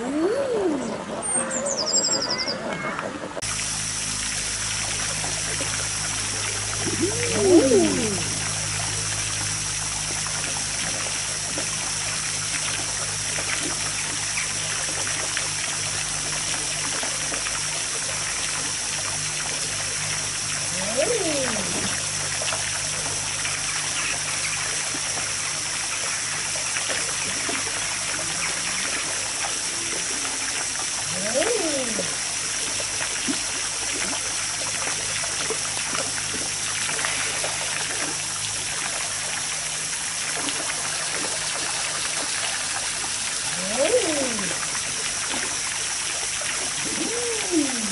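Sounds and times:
water trickling: 0.0 - 47.9
ducks cooing: 6.8 - 8.6, 20.7 - 22.0, 31.1 - 32.2, 43.5 - 44.6, 46.8 - 47.9.

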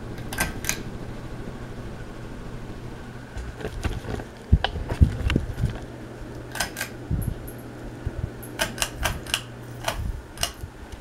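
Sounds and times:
ceiling fan motor humming: 0.0 - 11.0
sharp clicks: 8.5 - 10.7.

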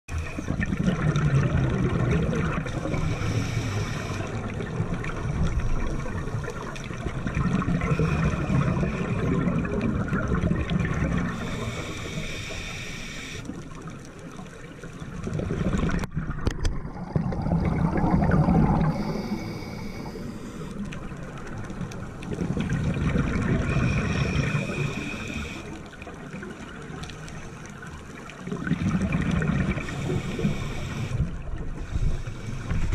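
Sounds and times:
scuba regulator bubbling exhalations: 0.1 - 13.5, 15.2 - 20.6, 28.5 - 32.0.

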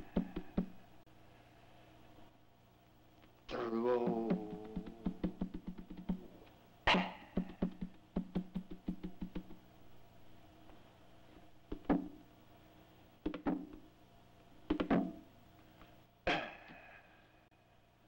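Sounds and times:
percussion hits: 4.1 - 6.3.

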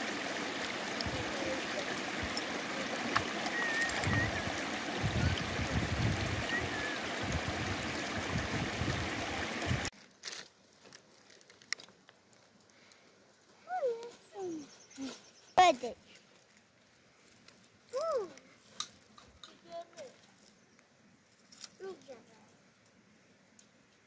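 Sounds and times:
water rushing: 0.0 - 9.9.

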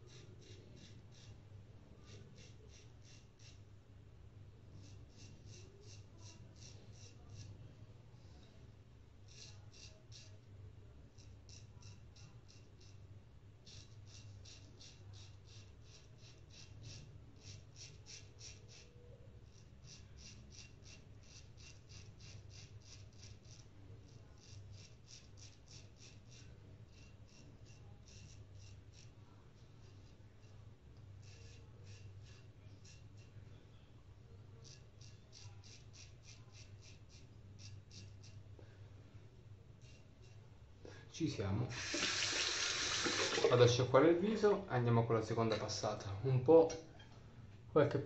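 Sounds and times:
razor scraping stubble: 0.0 - 1.4, 2.0 - 3.7, 4.8 - 7.6, 9.2 - 10.5, 11.1 - 30.6, 31.2 - 33.4, 34.6 - 38.5, 39.8 - 40.4, 41.7 - 43.6.

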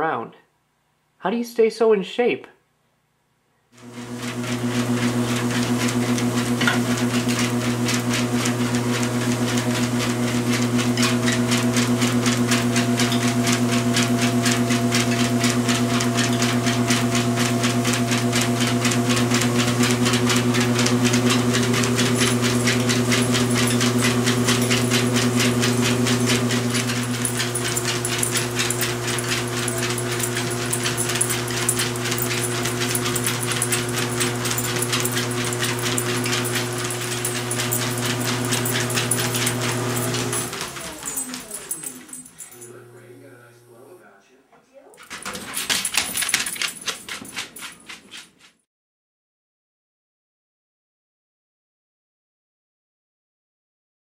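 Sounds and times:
treadmill motor hum: 3.8 - 43.9, 45.0 - 48.0
clicking of moving belt: 17.8 - 42.7.

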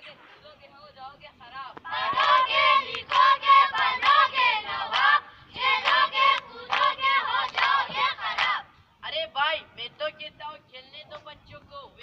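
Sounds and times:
children chanting in unison: 1.9 - 8.7.

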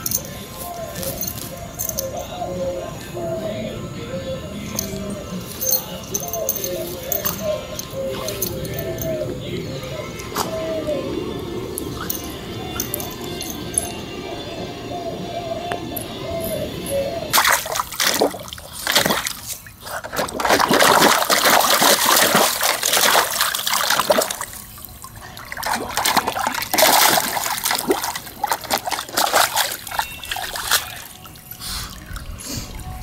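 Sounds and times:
water splashing in a plastic pool: 17.3 - 32.9.

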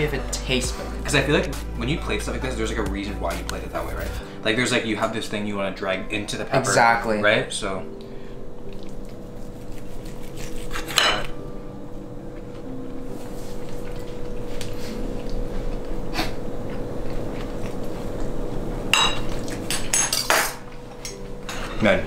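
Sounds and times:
cutlery scraping on plates: 10.5 - 11.3.

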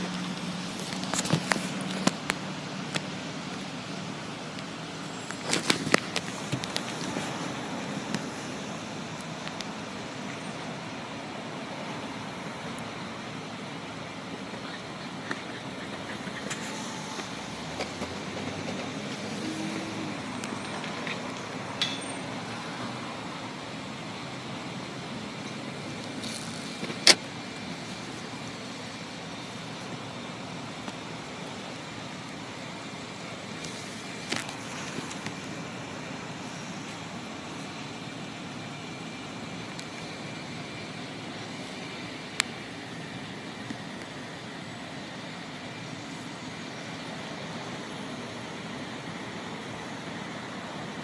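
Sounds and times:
cars idling: 0.0 - 51.0
road traffic: 0.0 - 51.0.

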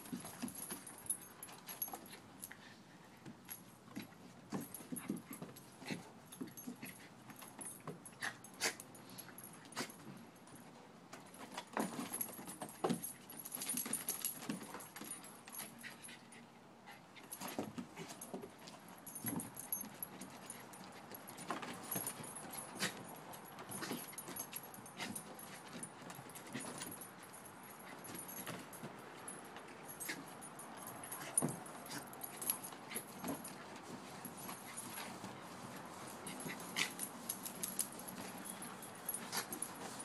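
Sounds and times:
dogs scuffling: 0.0 - 2.6, 3.2 - 16.3, 17.0 - 40.0
dog noises: 13.0 - 40.0.

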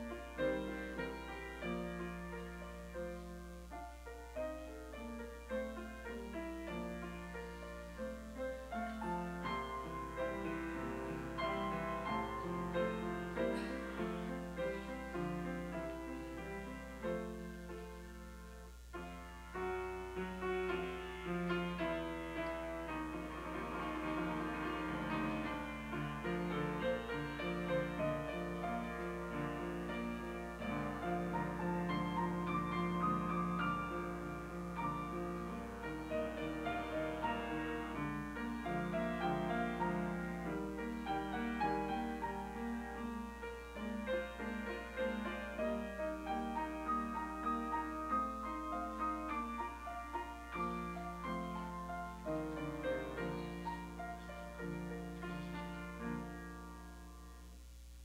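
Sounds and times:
solo piano piece: 0.0 - 58.0.

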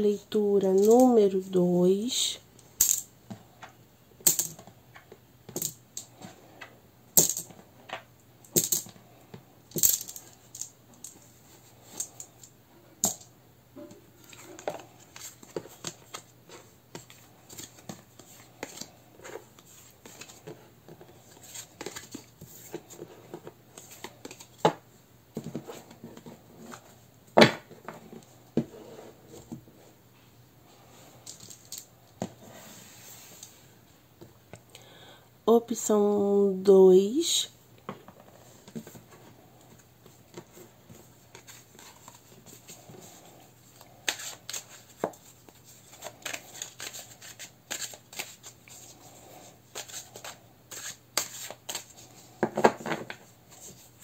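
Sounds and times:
cards sliding on wooden table: 32.2 - 33.7.

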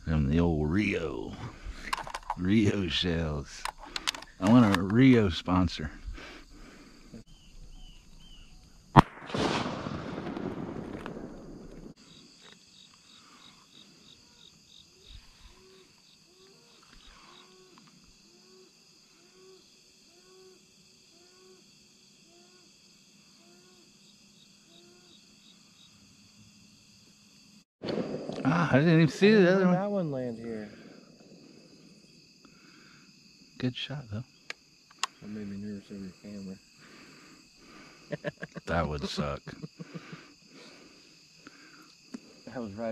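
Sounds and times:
insect chorus: 0.0 - 42.9
shotgun shot: 9.0 - 11.9, 27.8 - 28.8.

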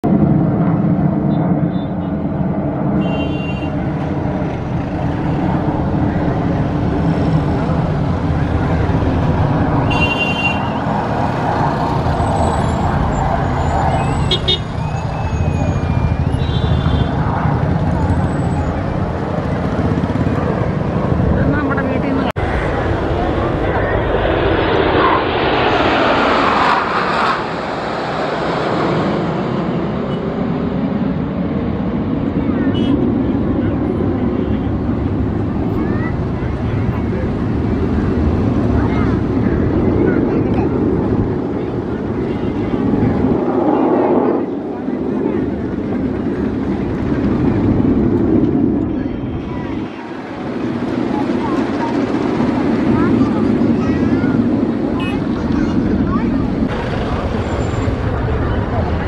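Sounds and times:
jet aircraft rumbling overhead: 0.0 - 59.0
high horn-like tone: 3.0 - 3.8, 9.9 - 10.8.

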